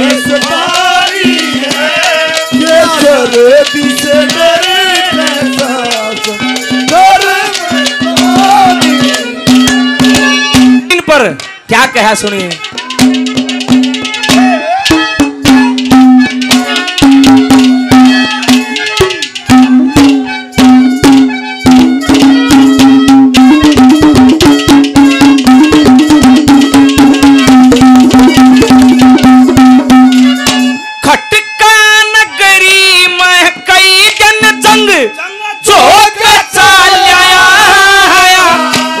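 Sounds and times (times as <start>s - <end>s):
wavering high melody: 0.0s - 10.9s, 12.4s - 31.7s
fast hand-drum strokes: 0.0s - 11.3s, 12.0s - 31.2s, 35.7s - 39.0s.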